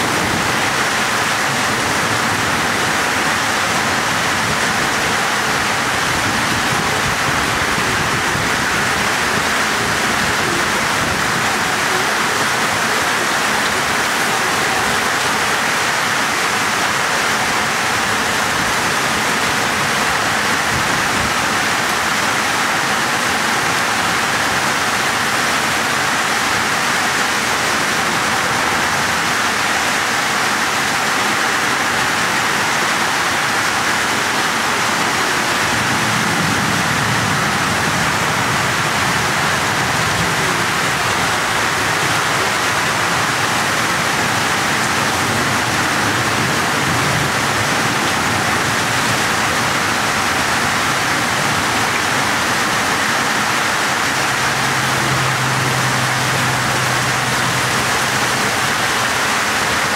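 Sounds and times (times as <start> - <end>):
floodwater rushing: 0.0 - 59.9
heavy rain: 0.0 - 59.9.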